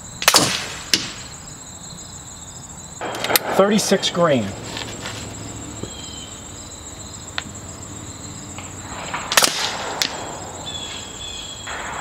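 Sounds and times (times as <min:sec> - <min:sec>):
insects buzzing: 0:00.0 - 0:12.0
air rifle firing crack: 0:00.2 - 0:01.3, 0:03.0 - 0:06.5, 0:08.5 - 0:12.0.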